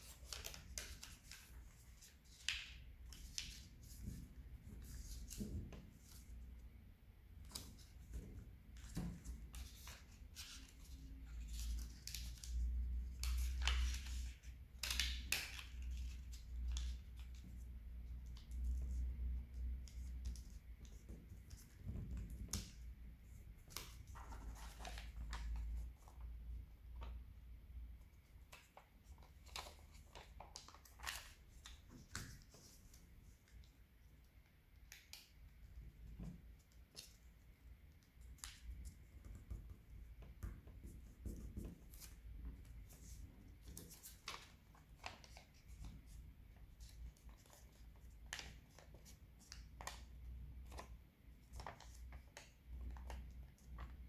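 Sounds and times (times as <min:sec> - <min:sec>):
paper crinkling and rustling: 0:23.6 - 0:26.2, 0:28.5 - 0:33.7, 0:42.8 - 0:54.0.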